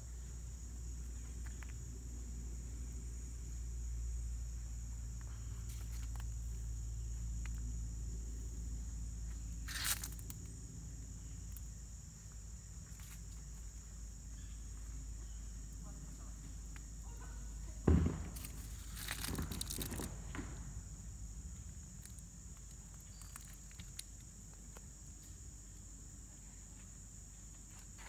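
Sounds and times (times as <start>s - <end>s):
insects chorus: 0.0s - 28.0s.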